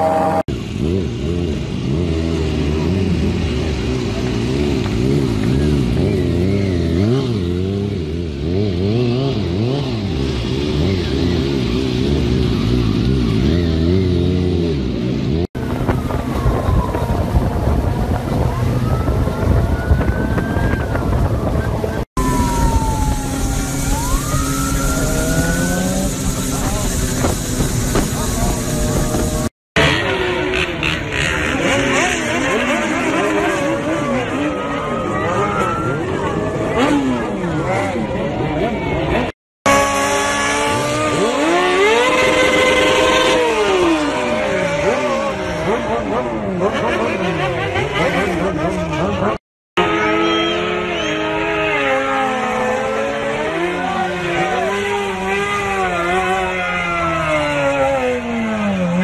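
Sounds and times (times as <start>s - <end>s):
motorcycle engine rumble: 0.0s - 59.0s
siren wailing: 15.6s - 29.5s, 33.5s - 37.3s
wind on microphone: 15.6s - 29.5s.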